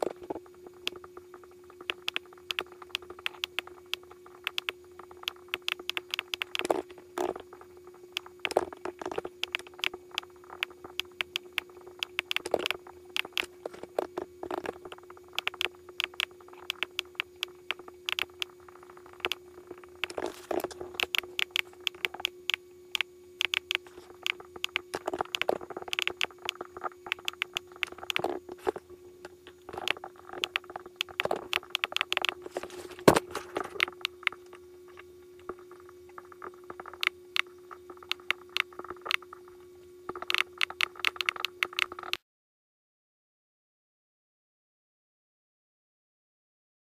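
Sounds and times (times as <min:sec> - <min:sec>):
electrical hum: 0:00.0 - 0:42.2
keyboard and mouse clicking: 0:01.8 - 0:07.4, 0:08.1 - 0:19.4, 0:20.0 - 0:28.4, 0:29.7 - 0:32.4, 0:33.6 - 0:34.6, 0:35.4 - 0:39.4, 0:40.1 - 0:42.2.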